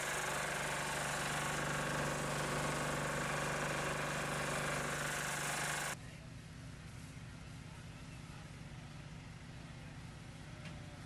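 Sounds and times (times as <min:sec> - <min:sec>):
vehicle engine idling: 0:00.0 - 0:06.0.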